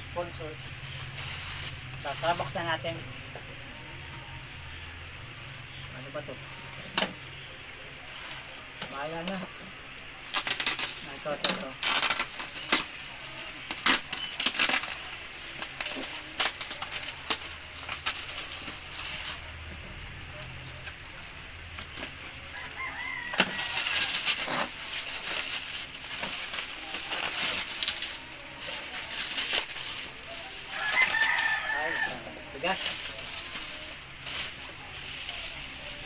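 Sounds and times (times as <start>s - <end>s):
plastic mailer bag crinkling: 0.0s - 3.0s, 5.7s - 36.0s
tape being torn: 10.3s - 18.9s
rooster crowing: 22.5s - 24.2s, 30.7s - 32.4s.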